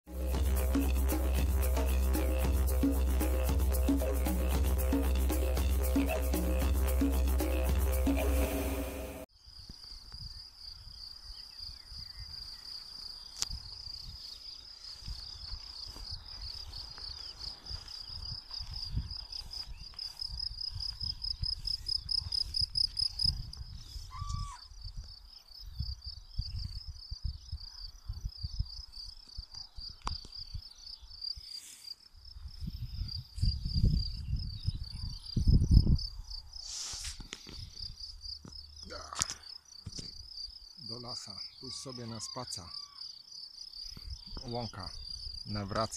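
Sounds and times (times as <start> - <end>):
crickets chirping: 9.3 - 45.9
wind rumbling on microphone: 17.7 - 28.7, 32.4 - 36.3.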